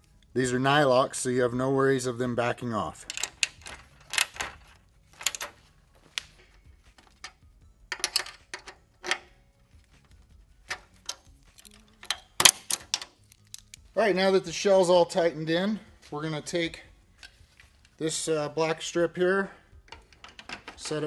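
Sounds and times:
metal pliers clinking: 0:10.7 - 0:13.8.

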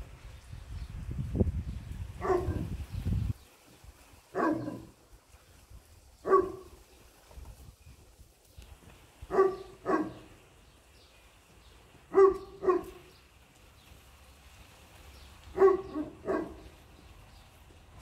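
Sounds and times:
dog barking: 0:02.2 - 0:02.7, 0:04.3 - 0:04.9, 0:06.2 - 0:06.8, 0:09.3 - 0:10.3, 0:12.1 - 0:13.1, 0:15.5 - 0:16.6.

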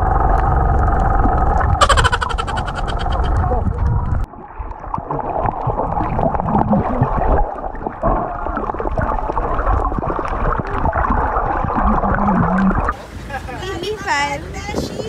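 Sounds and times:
gurgling bubbles: 0:04.4 - 0:13.0.

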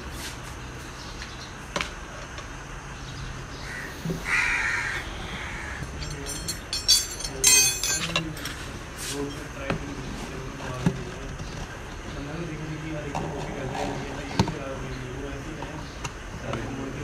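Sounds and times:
crow cawing: 0:03.6 - 0:06.0.

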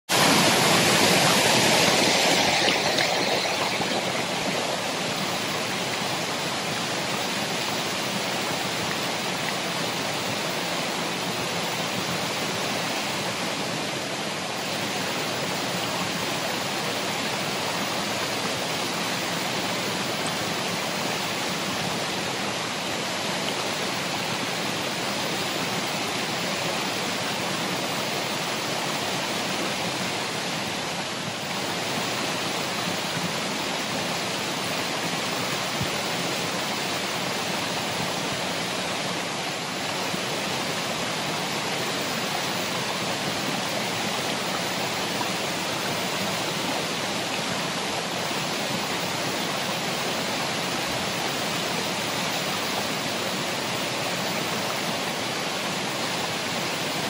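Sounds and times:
waterfall pouring: 0:00.1 - 0:09.2.

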